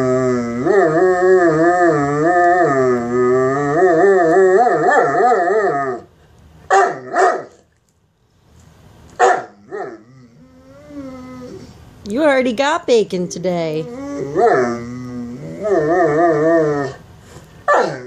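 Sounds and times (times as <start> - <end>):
dog howl-like whine: 0.0 - 6.1, 9.6 - 11.8, 13.9 - 17.1
dog yips: 17.7 - 18.0.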